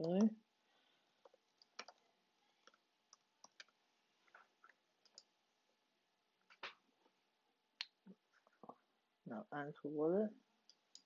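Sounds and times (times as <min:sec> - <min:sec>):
keystrokes on computer keyboard: 0:01.2 - 0:03.7.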